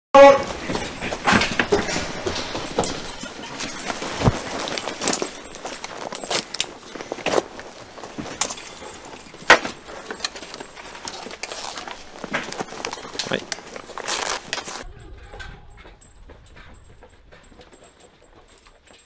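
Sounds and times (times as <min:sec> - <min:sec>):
clothing rustling: 0:00.4 - 0:14.8
buckles clicking and knocking: 0:00.6 - 0:14.8.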